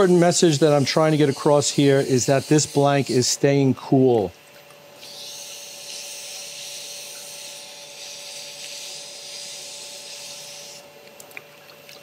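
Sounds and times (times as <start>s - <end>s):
wet sandpaper hissing: 0.0s - 3.4s, 5.0s - 10.8s
lathe humming: 0.0s - 3.7s, 5.0s - 10.9s.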